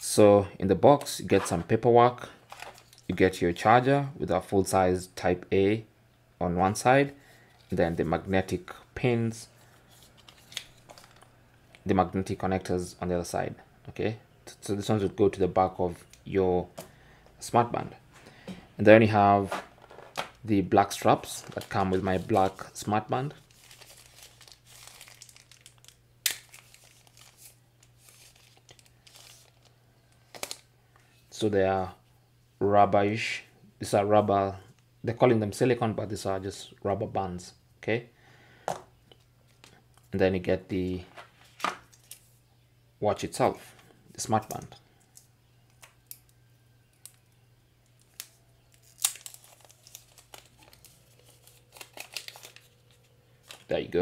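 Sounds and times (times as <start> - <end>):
plastic wrapping crinkling: 19.4 - 30.7, 47.9 - 53.9.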